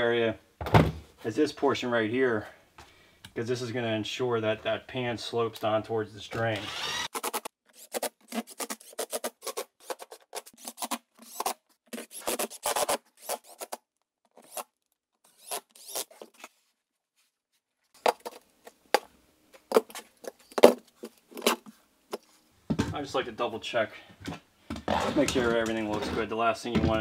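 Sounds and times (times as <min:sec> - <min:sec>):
hand scrapes rubs and clicks: 0:06.9 - 0:14.7.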